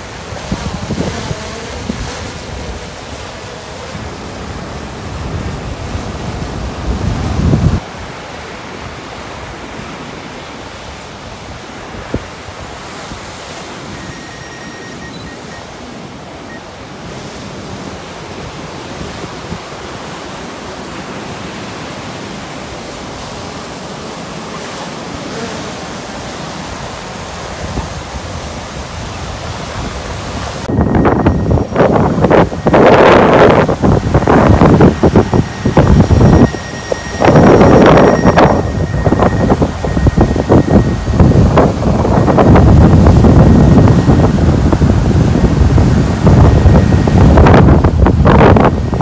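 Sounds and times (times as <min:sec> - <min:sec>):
wind buffeting the microphone: 0:00.0 - 0:08.2, 0:25.8 - 0:49.0
surf on the shore: 0:00.0 - 0:49.0
wind: 0:00.0 - 0:49.0.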